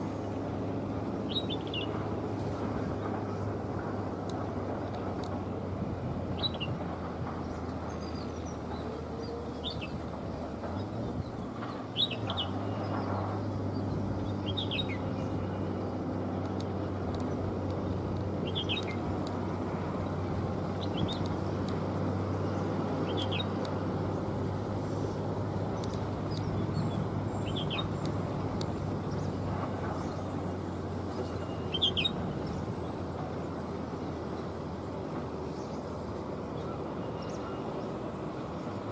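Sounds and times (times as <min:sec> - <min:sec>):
turboprop plane droning: 0:00.0 - 0:38.9
bird chirping: 0:01.3 - 0:02.0, 0:10.8 - 0:15.9, 0:18.4 - 0:19.0, 0:22.4 - 0:23.6, 0:24.9 - 0:30.3, 0:31.1 - 0:33.0.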